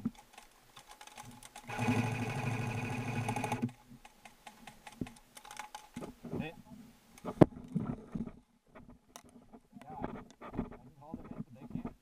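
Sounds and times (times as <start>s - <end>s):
airsoft rifle full-auto burst: 1.6s - 3.7s.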